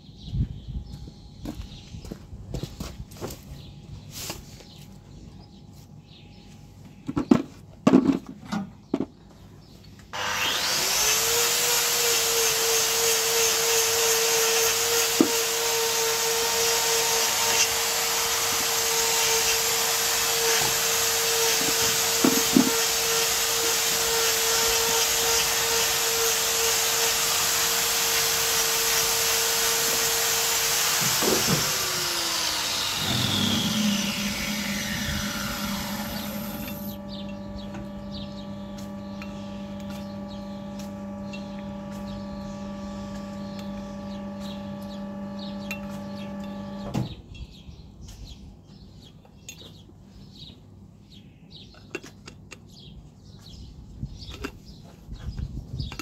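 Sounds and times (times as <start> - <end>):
power tool humming: 10.1 - 47.0.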